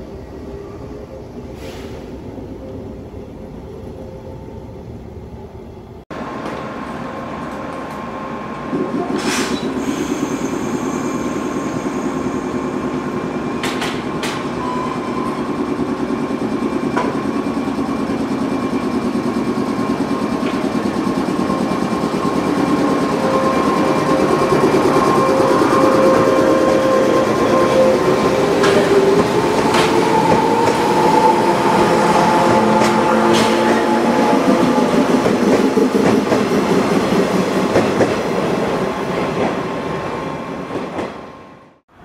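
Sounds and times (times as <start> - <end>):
electric train running: 9.6 - 39.6.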